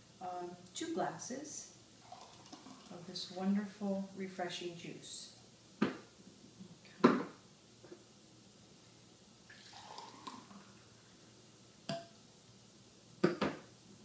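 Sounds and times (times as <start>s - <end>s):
juice pouring into a glass: 2.0s - 3.0s, 9.5s - 10.9s.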